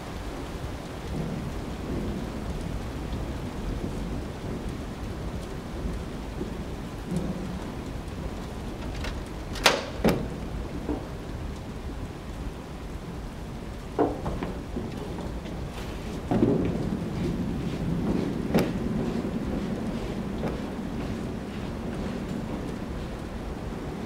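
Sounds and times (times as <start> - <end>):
rain: 0.0 - 24.0
thunderstorm rumble: 0.0 - 24.0
sharp knocks: 14.0 - 15.0, 18.0 - 21.2.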